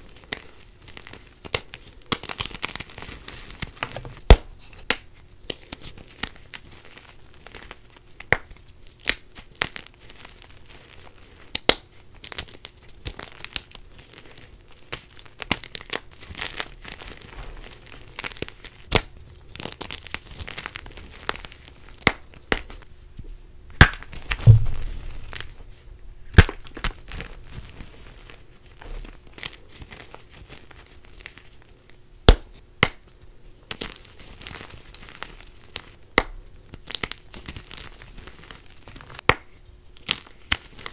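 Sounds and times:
chalk crumbling and crunching: 0.0 - 40.9
dull thump: 24.3 - 25.4.

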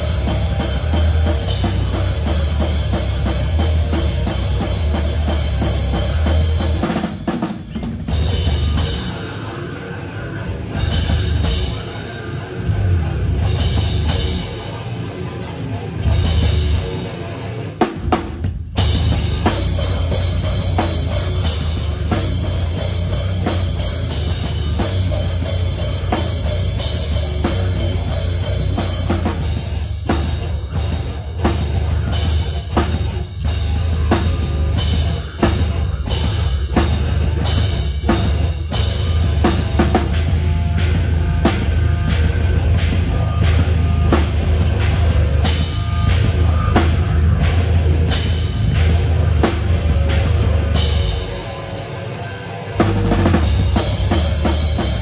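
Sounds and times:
live rock band: 0.0 - 55.0
drum kit hits: 52.8 - 55.0.

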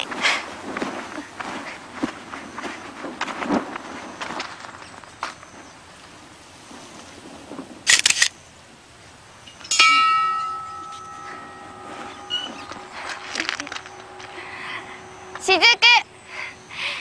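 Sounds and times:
camera shutter clicks: 7.9 - 8.4
hanging bell ringing: 9.5 - 17.0.

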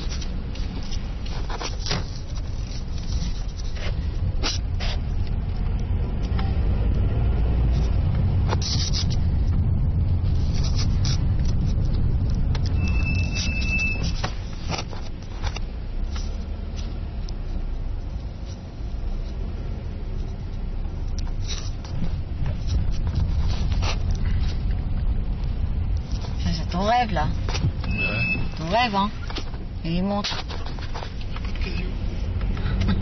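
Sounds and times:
engine and road rumble: 0.0 - 33.0
short high beep: 27.9 - 28.6.

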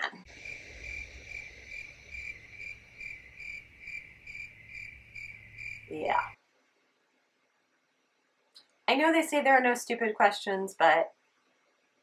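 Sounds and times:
crickets chirping: 0.3 - 6.4
low hum: 0.3 - 6.4.

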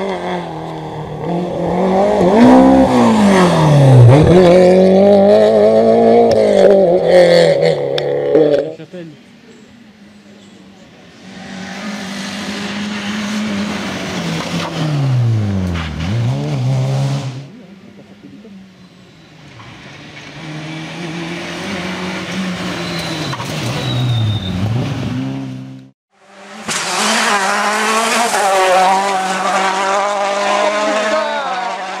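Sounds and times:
rally car engines passing: 0.0 - 32.0
engine with wavering pitch: 9.5 - 32.0.

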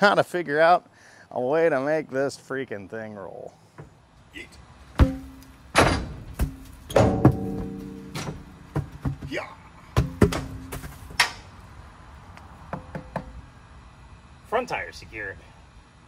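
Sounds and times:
wheels and tyres thudding on trailer: 4.9 - 11.5.

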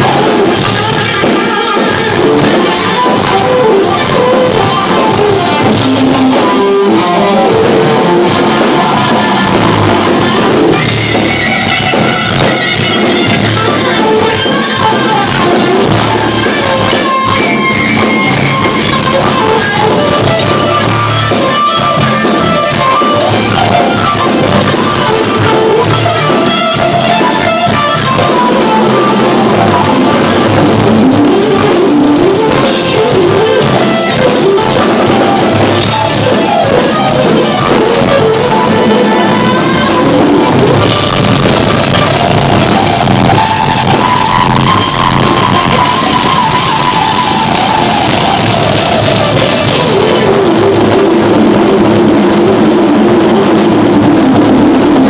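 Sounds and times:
drum kit: 0.0 - 55.0
lead electric guitar: 0.0 - 55.0.

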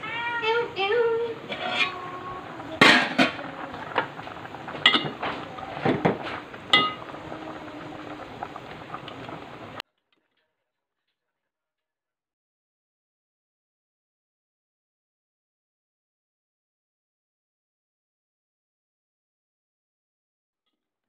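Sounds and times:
steady hiss: 0.0 - 9.8
metal spoon clinking on a pot: 4.9 - 5.2, 6.7 - 7.0.

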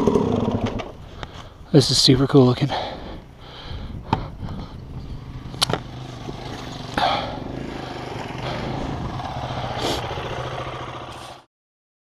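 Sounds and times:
dirt bike engine running: 3.4 - 11.5.

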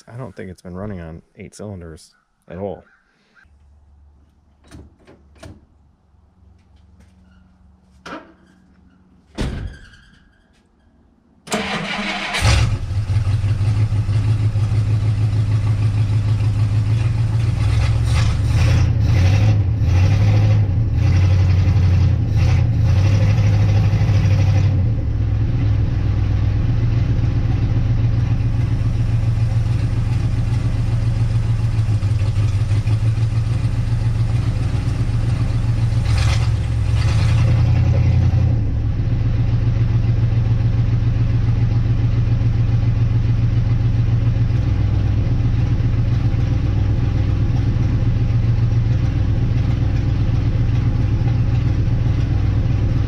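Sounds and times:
car engine idling: 11.5 - 18.9, 23.5 - 53.0.

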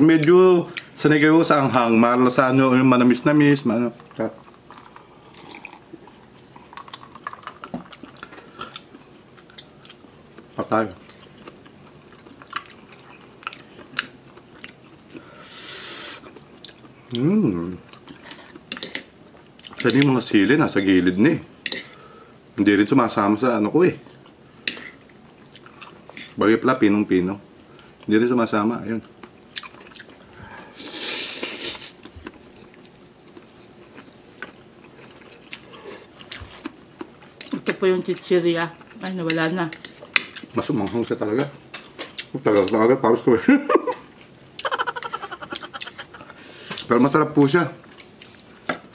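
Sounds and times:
chewing with wet mouth clicks: 4.0 - 15.2, 16.2 - 17.2, 24.2 - 26.4, 29.0 - 30.2, 32.0 - 41.1, 41.7 - 42.8
wet chewing: 4.0 - 15.3, 44.2 - 48.5
hissing draw through mouth: 15.4 - 16.3, 30.7 - 32.0, 46.2 - 46.9
person slurping noodles: 30.8 - 32.0.

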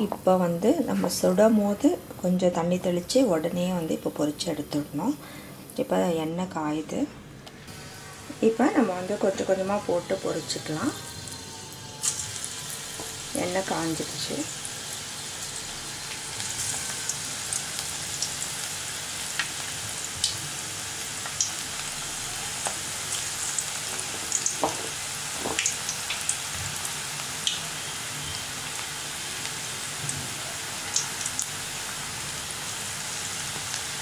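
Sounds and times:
food deep-frying in hot oil: 7.7 - 34.0
oil popping and crackling: 12.0 - 13.6, 15.2 - 27.9, 28.7 - 34.0.

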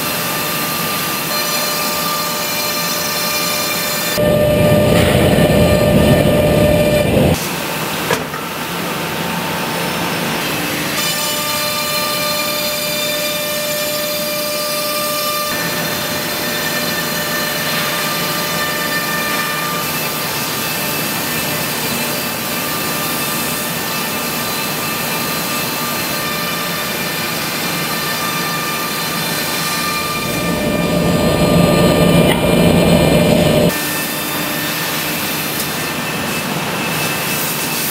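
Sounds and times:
router spindle whirring: 29.7 - 33.8.

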